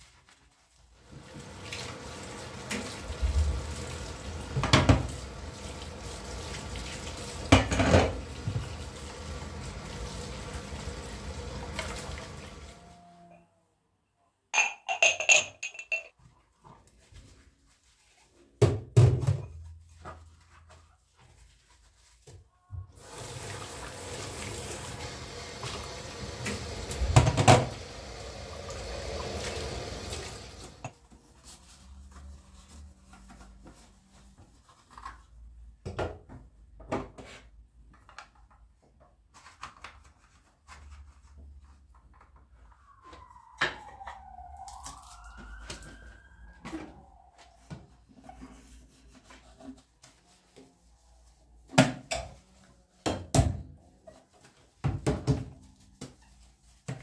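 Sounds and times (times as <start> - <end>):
water running: 1.0 - 13.1, 23.0 - 30.9.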